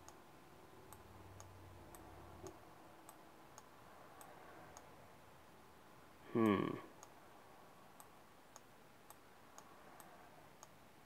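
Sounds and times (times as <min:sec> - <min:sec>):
computer mouse clicking: 0:00.0 - 0:00.2, 0:00.9 - 0:05.0, 0:08.0 - 0:10.8.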